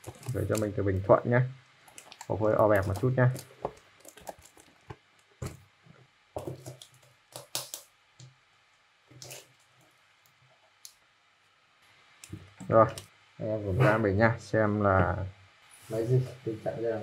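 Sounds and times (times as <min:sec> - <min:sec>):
plastic wrap crinkling: 0:00.0 - 0:01.1, 0:01.8 - 0:05.6, 0:06.4 - 0:07.9, 0:09.1 - 0:10.9.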